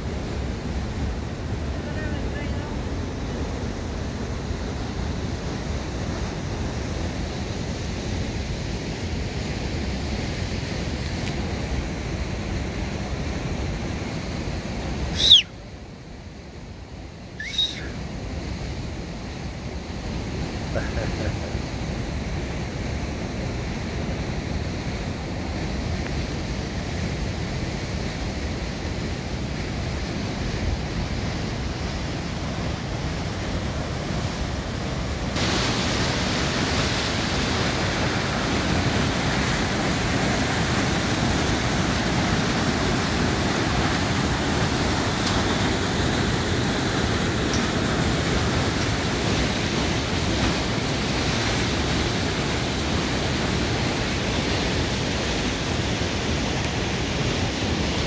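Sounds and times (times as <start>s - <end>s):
white-water rapids rushing: 13.7s - 15.5s, 17.4s - 18.3s, 25.2s - 58.0s.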